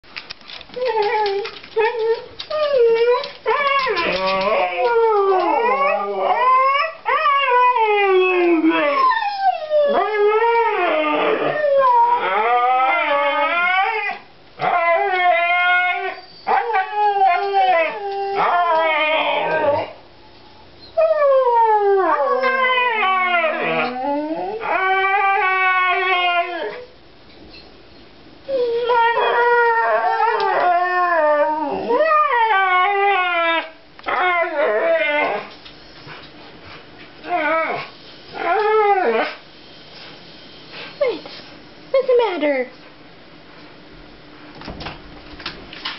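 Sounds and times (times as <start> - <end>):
dogs howling: 0.8 - 20.0, 21.0 - 26.8, 28.5 - 35.5, 37.2 - 39.4.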